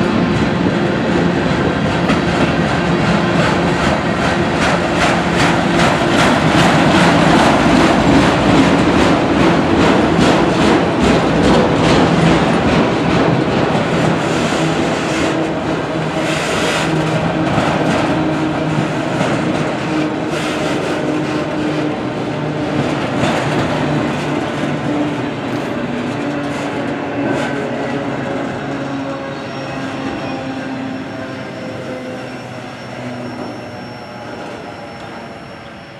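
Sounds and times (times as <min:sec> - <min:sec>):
train wheels clattering on rail joints: 0:00.0 - 0:31.0
train rumble: 0:00.0 - 0:35.9.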